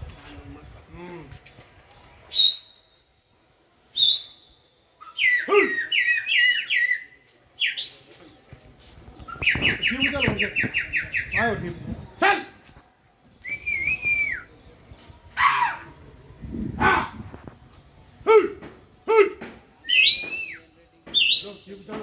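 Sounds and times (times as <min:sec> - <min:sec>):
person whistling: 0:13.4 - 0:14.5.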